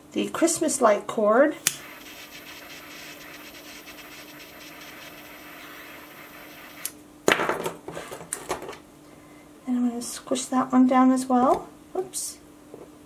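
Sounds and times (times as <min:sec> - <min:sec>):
torch lighter flame hissing: 0:01.7 - 0:07.0.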